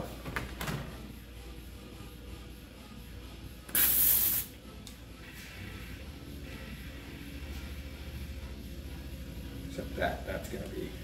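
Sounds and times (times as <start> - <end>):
compressed air hiss: 3.7 - 4.5.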